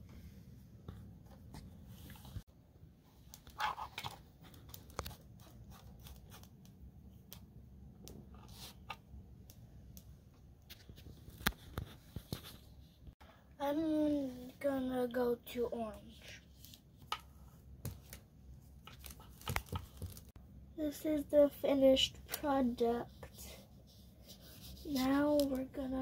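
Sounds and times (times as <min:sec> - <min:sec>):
brush scraping: 0:22.6 - 0:25.9.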